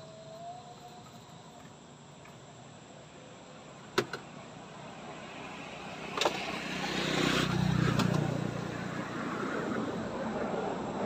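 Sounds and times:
car passing: 3.2s - 11.0s.

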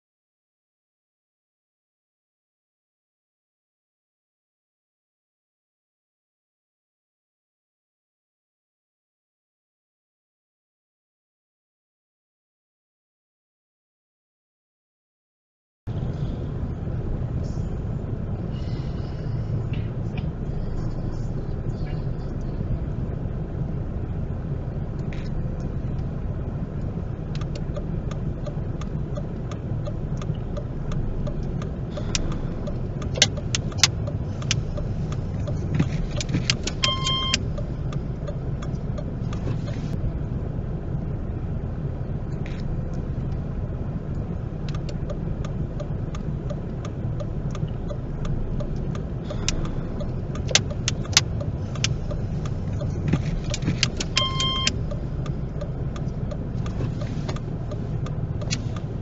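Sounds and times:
car engine and road rumble: 15.9s - 59.0s
scattered clicks: 26.8s - 40.0s, 44.1s - 59.0s
short electronic beep: 36.8s - 37.4s, 54.2s - 54.7s.

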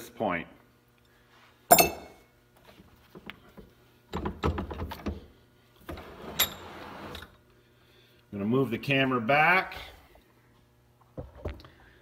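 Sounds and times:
short metallic clink: 1.7s - 2.2s.

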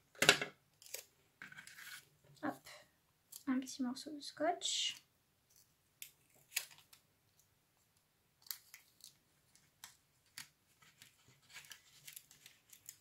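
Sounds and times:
tape rustling and clicking: 5.5s - 13.0s.

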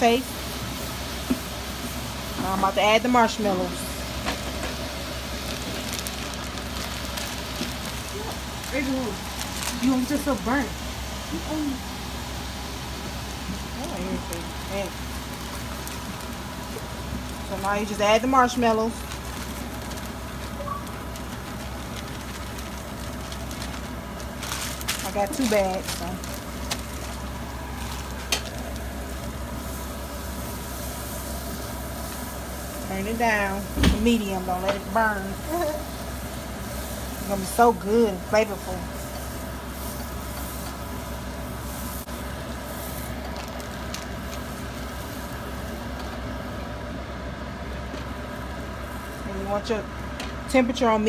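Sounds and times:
steady hiss: 0.0s - 46.8s
plastic bag crinkling: 5.0s - 10.6s, 13.7s - 32.2s, 42.1s - 46.1s.

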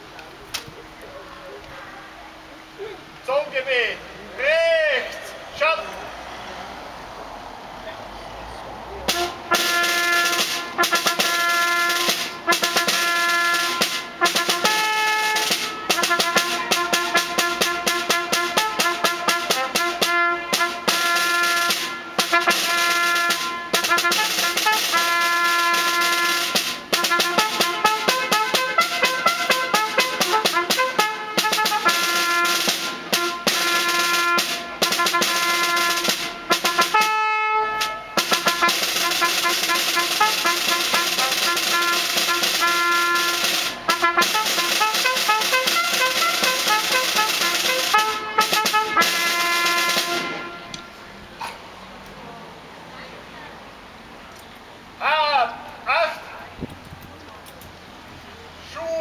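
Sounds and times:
snare drum strokes and rolls: 9.1s - 51.0s
trumpets playing: 9.1s - 51.1s.

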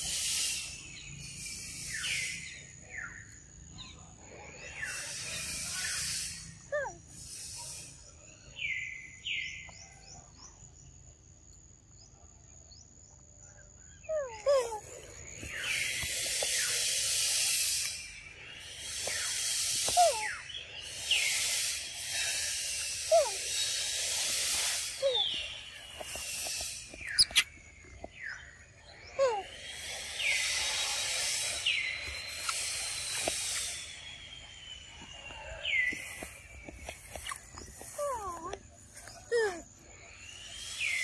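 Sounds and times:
insects shrilling: 0.0s - 3.2s, 4.6s - 8.8s, 14.1s - 41.0s
descending bird calls: 13.9s - 41.0s.

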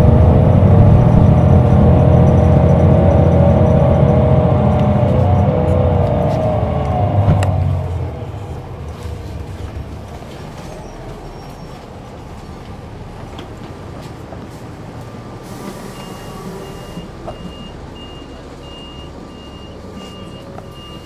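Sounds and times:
bus diesel engine running: 0.0s - 21.0s.

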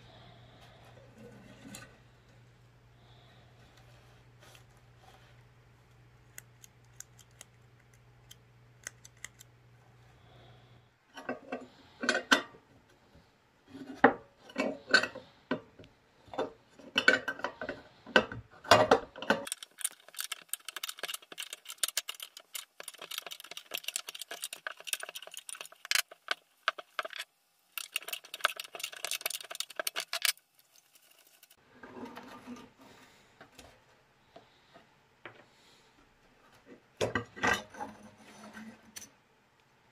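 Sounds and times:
rapid scraping and rattling: 19.3s - 33.0s.

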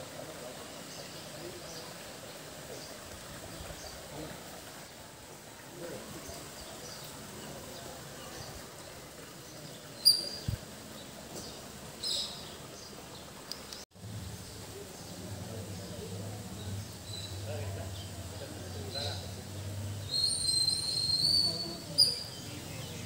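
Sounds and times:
bird chirps: 10.0s - 10.5s, 20.0s - 23.0s.

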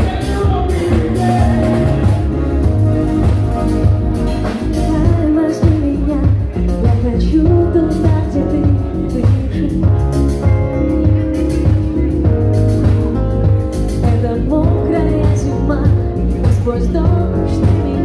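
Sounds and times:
bass guitar: 0.0s - 18.0s
drums: 0.0s - 18.0s
electric guitar: 0.0s - 18.0s
keyboard: 0.0s - 18.0s
woman singing: 4.7s - 10.1s, 14.0s - 18.0s.

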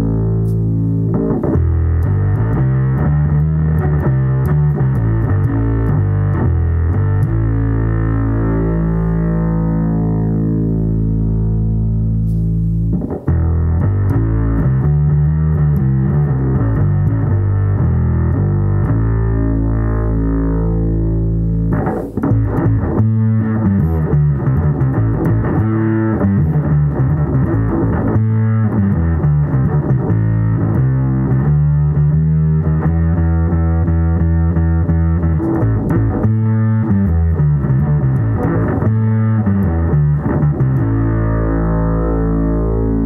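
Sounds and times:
fuzzed bass guitar notes: 0.0s - 43.0s.

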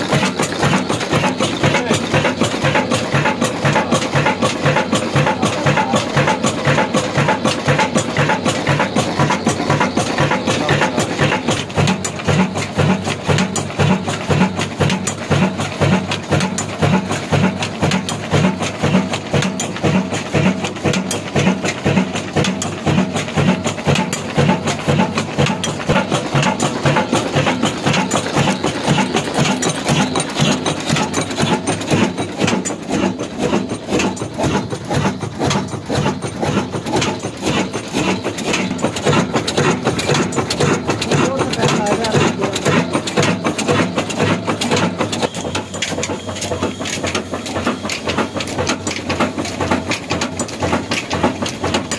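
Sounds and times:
stationary diesel engine running: 0.0s - 51.9s.

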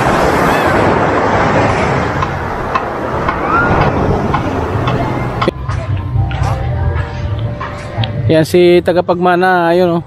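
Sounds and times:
waves breaking on a beach: 0.0s - 5.5s.

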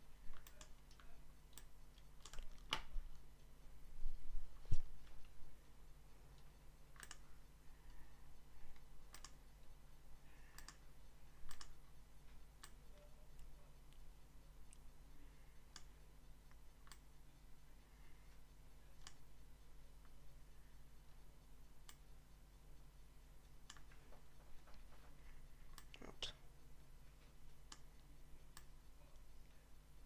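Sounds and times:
low electrical hum: 0.0s - 30.0s
computer mouse clicking: 0.3s - 3.2s, 6.9s - 7.3s, 8.7s - 9.5s, 10.4s - 11.8s, 15.7s - 17.2s, 19.0s - 19.3s, 21.8s - 22.1s, 23.6s - 26.1s, 27.6s - 28.8s.

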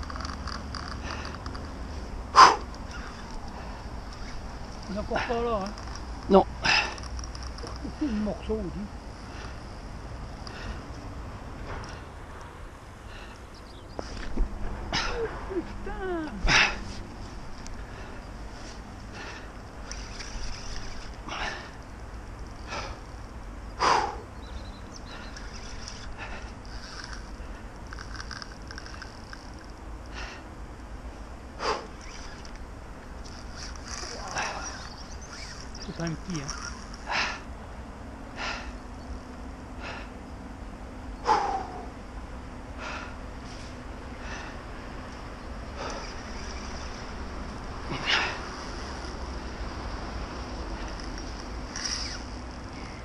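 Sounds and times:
steady low rumble: 0.0s - 53.0s
man breathing hard: 10.4s - 12.2s, 13.0s - 13.5s, 23.8s - 24.4s, 30.1s - 30.5s, 38.2s - 38.9s, 39.7s - 40.3s, 41.2s - 42.0s, 42.7s - 46.2s, 47.8s - 49.0s
man grunting: 15.0s - 16.8s
person breathing hard: 39.7s - 40.2s.

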